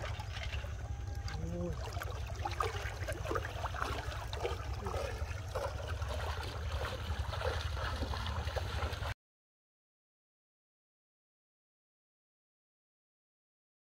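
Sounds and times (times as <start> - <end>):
water sloshing around wading legs: 0.0 - 9.2.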